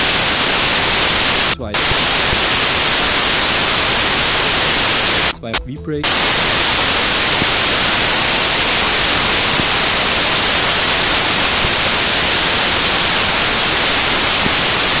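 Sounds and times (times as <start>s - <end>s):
static hiss: 0.0s - 15.0s.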